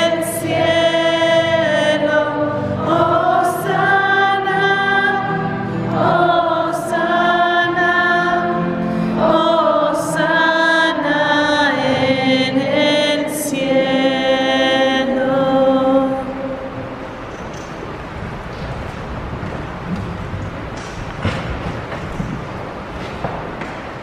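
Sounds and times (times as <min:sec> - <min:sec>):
voices singing a hymn: 0:00.0 - 0:17.3.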